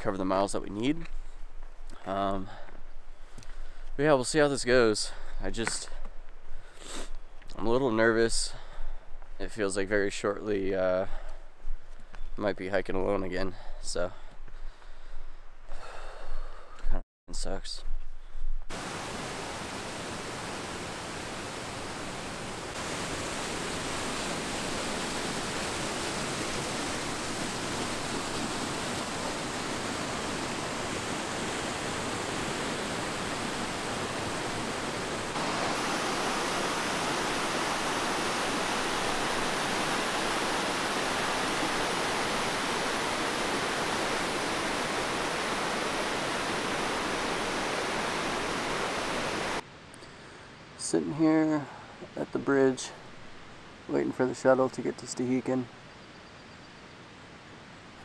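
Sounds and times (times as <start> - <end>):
mountain stream rushing water: 18.7 - 49.7.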